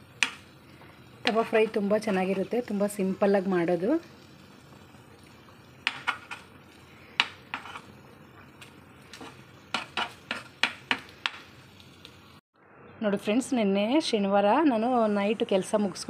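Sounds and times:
metal spatula scraping a griddle: 7.2 - 8.0, 9.1 - 10.6.

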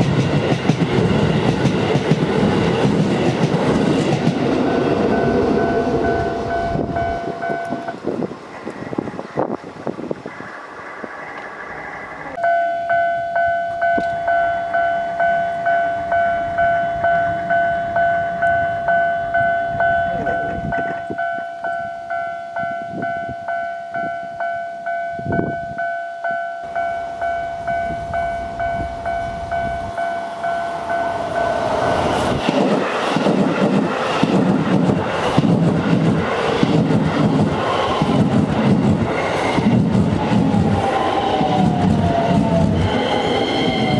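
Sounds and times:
train wheels clattering: 0.0 - 8.1, 30.6 - 43.9
level-crossing alarm bell: 4.6 - 8.0, 12.4 - 32.2.

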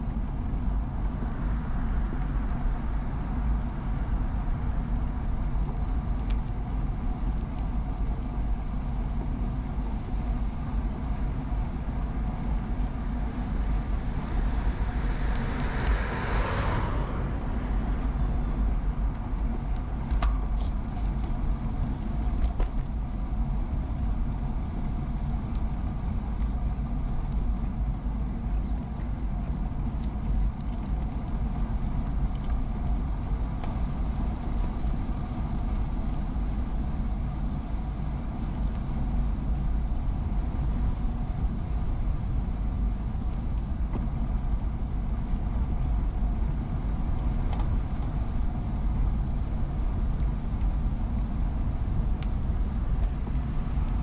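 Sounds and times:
wind and road noise: 0.0 - 54.0
car passing: 13.1 - 19.6, 33.6 - 43.8.

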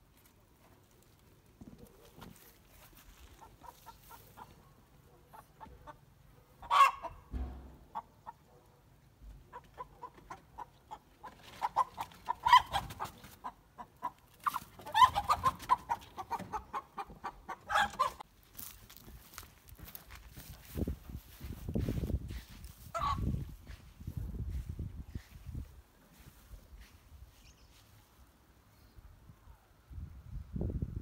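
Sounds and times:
chickens clucking: 1.6 - 18.3, 18.9 - 27.9
chickens squawking: 2.0 - 7.3, 9.4 - 18.3, 22.4 - 23.7.

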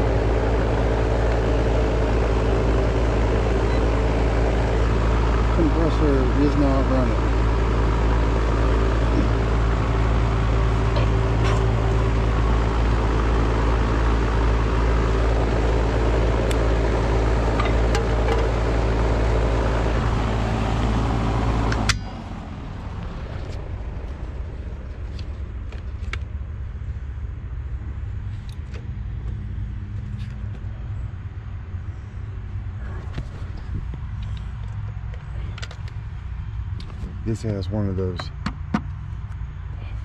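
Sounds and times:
air conditioner motor hum: 0.0 - 25.7.

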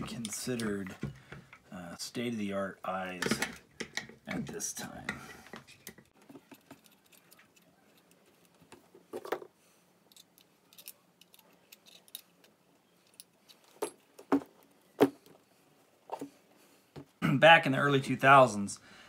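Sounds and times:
metal parts clicking and tapping: 3.2 - 9.4, 10.0 - 14.3.

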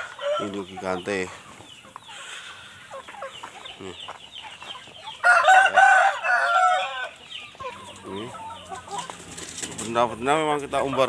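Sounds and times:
chickens clucking softly: 0.0 - 11.0
rooster crowing: 5.2 - 7.2.

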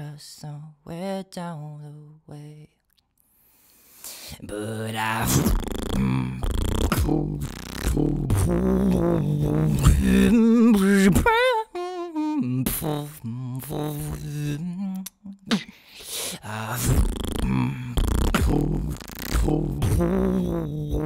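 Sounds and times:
wavering vocal line: 4.4 - 15.8, 16.4 - 21.0
beatboxing kick and snare: 5.2 - 10.2, 16.8 - 21.0.

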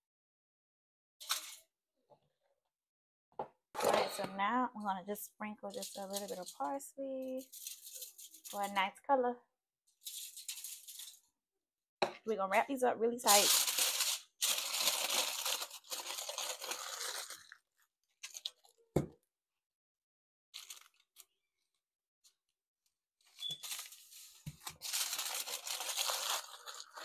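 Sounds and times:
aluminium foil crinkling: 1.2 - 1.6, 5.6 - 8.9, 9.9 - 11.3, 12.6 - 18.8, 20.6 - 21.8, 23.2 - 27.0.

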